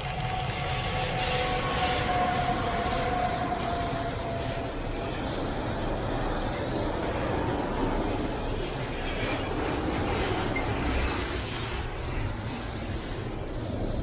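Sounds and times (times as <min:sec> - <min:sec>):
locomotive whine: 0:00.0 - 0:14.0
train wheels rumbling and rattling: 0:00.0 - 0:14.0.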